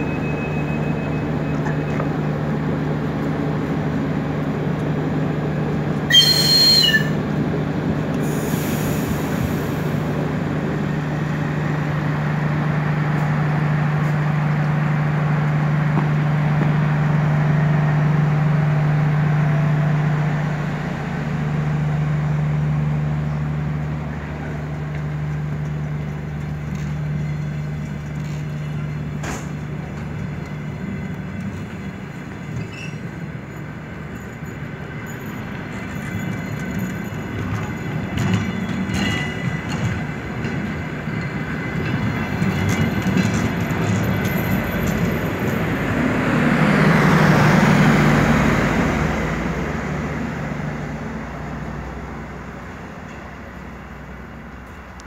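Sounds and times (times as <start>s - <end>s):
diesel train engine drone: 0.0s - 55.0s
high squeal: 6.1s - 7.2s, 32.6s - 33.1s
hiss: 8.2s - 10.1s.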